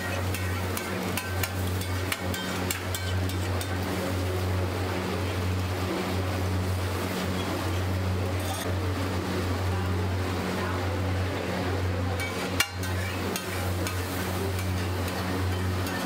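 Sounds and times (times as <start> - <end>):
metal spatula clacking griddle: 0.0 - 3.8, 12.2 - 16.0
egg batter sizzling on griddle: 0.0 - 4.8, 12.2 - 16.0.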